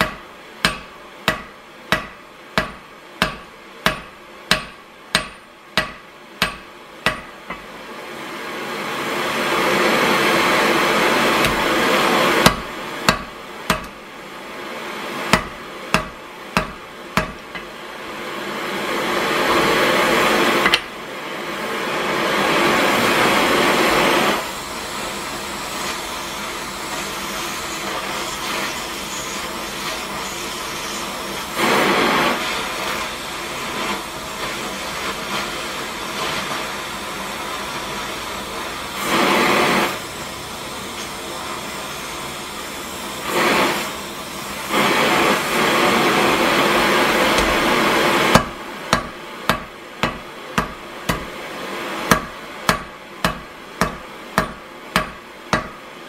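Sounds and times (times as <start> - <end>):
hammer striking metal on anvil: 0.0 - 7.7, 12.4 - 14.0, 15.3 - 17.8, 20.6 - 20.9, 48.3 - 51.3, 52.1 - 55.9
gas torch flame hissing: 7.5 - 55.1.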